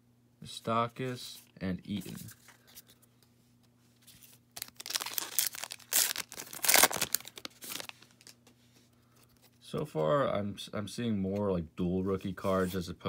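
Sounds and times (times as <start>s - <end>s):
wrapper tearing and crinkling: 4.2s - 8.4s.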